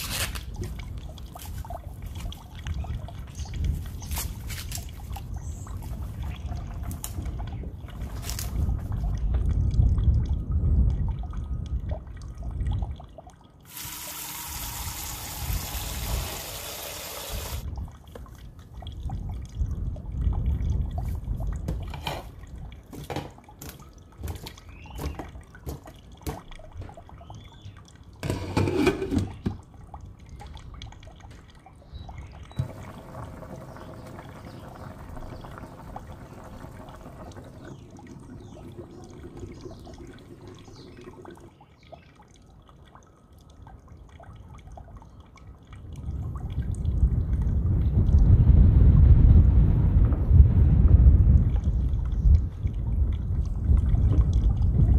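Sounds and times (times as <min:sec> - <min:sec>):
tap water running into a pot: 0:13.7 - 0:17.7, 0:32.6 - 0:41.5
water boiling under a lid: 0:13.7 - 0:17.7, 0:32.4 - 0:41.6
water splashing and knocks: 0:20.4 - 0:27.5, 0:28.2 - 0:31.8, 0:32.5 - 0:41.5, 0:49.9 - 0:54.9.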